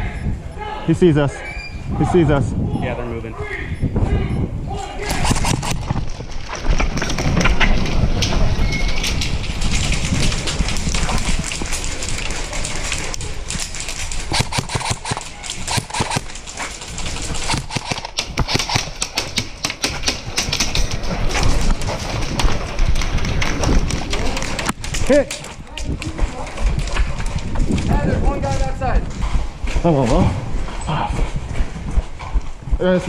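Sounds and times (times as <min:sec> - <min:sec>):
running footsteps: 0:04.7 - 0:33.0
gear rattling: 0:05.0 - 0:32.2.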